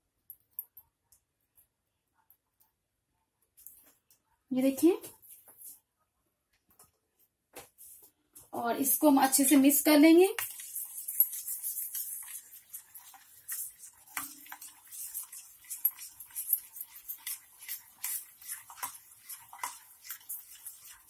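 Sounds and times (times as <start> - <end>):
spoon stirring batter in bowl: 8.8 - 21.0.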